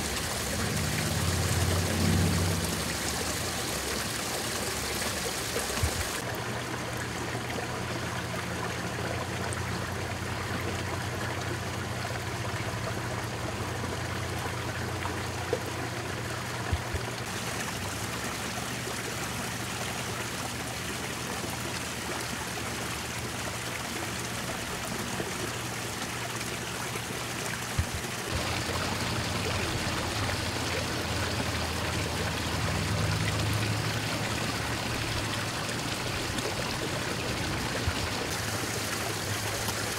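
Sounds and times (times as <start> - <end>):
water trickling into a pond: 0.0 - 39.9.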